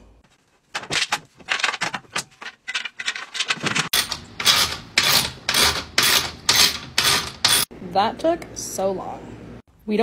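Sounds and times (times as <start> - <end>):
bed frame parts knocking: 0.7 - 7.6.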